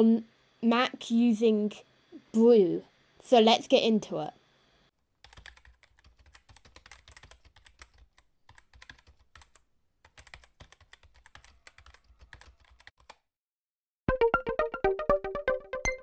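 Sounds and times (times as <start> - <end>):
computer keyboard typing: 5.2 - 13.2.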